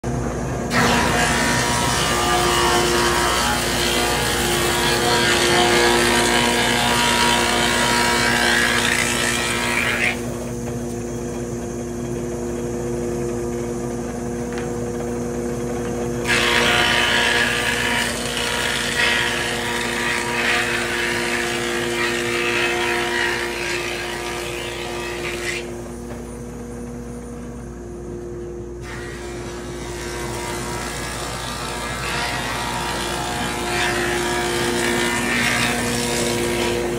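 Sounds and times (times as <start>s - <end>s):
planer cutting boards rushing: 0.7s - 10.8s, 15.8s - 26.4s, 28.8s - 36.9s.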